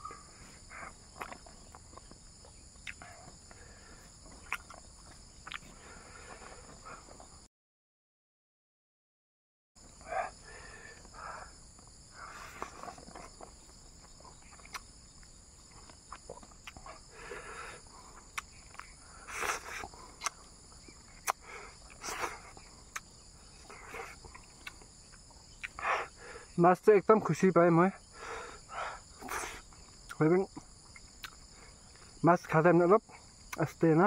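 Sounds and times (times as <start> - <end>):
insects trilling: 0.0 - 7.5, 9.8 - 34.0
person chewing food: 0.7 - 6.6, 11.7 - 26.1, 30.8 - 32.1
lip smacks: 1.1 - 2.2, 2.8 - 3.4, 4.3 - 5.8, 12.3 - 17.0, 18.2 - 24.9, 25.6 - 26.1, 29.2 - 30.2, 30.9 - 31.4.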